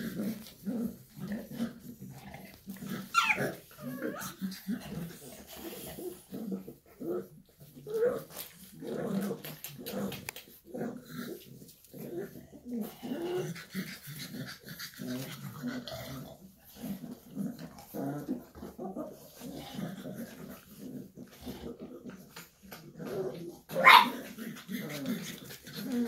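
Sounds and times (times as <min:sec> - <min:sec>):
puppies whining and grunting: 0:02.7 - 0:04.4.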